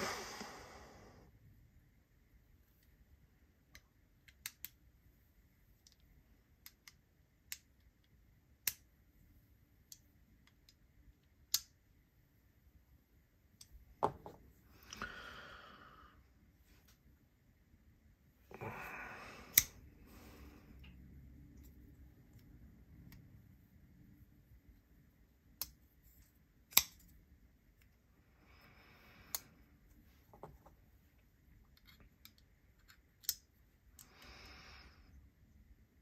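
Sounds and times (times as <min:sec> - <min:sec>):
small metal clicks: 0:31.7 - 0:34.2.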